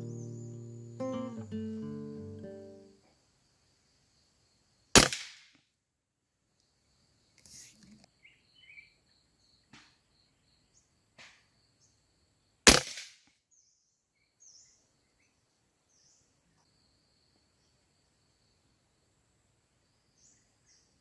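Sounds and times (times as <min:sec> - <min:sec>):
rifle shot: 0:05.0 - 0:05.6, 0:12.7 - 0:13.2.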